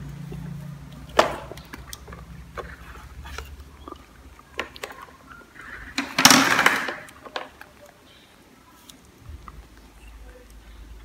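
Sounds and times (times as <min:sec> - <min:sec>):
loud noisy scuffling: 0:00.0 - 0:07.6.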